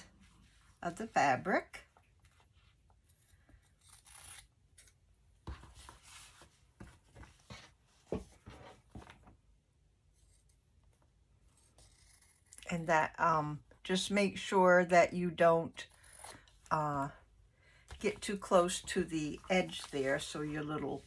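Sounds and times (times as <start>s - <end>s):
fabric and paper rustling: 17.9s - 21.0s.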